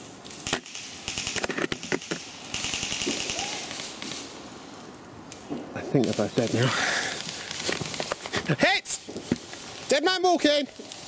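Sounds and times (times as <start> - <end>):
rapid automatic fire: 0.4 - 4.2
airsoft guns firing: 0.4 - 4.3, 6.0 - 8.0.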